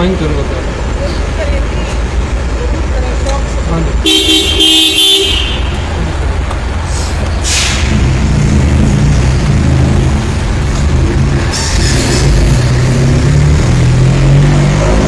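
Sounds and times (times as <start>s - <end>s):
heavy vehicle engine running: 0.0s - 15.0s
air brake hiss: 6.9s - 8.0s.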